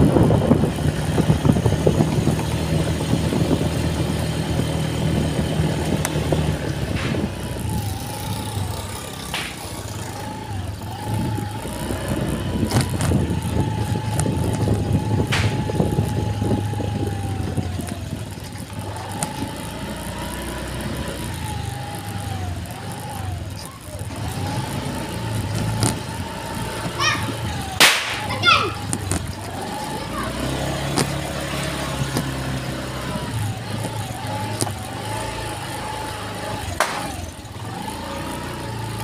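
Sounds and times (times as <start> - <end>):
motorcycle engine running: 0.0 - 39.0
sharp knocks: 15.3 - 15.7.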